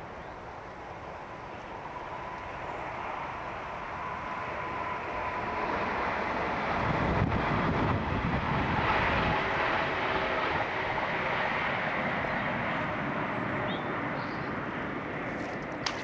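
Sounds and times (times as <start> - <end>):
wind buffeting microphone: 6.4 - 11.2.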